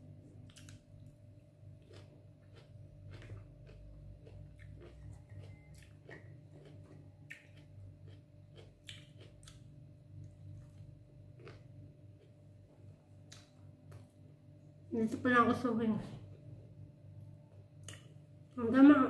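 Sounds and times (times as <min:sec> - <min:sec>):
steady low hum: 0:00.0 - 0:19.0
chewing with mouth smacks: 0:00.4 - 0:01.1, 0:01.8 - 0:14.1, 0:17.8 - 0:18.2.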